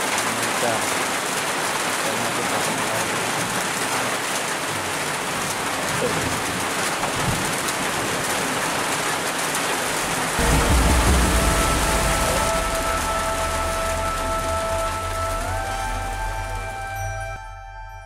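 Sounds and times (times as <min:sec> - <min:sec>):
steady rain hiss: 0:00.0 - 0:17.3
low rumble: 0:10.4 - 0:17.6.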